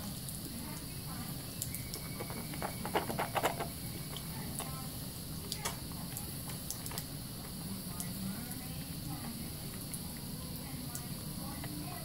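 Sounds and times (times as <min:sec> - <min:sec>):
running faucet trickle: 0:00.0 - 0:12.0
soap lather squelching: 0:01.5 - 0:08.2
squishy clicks: 0:01.6 - 0:04.8.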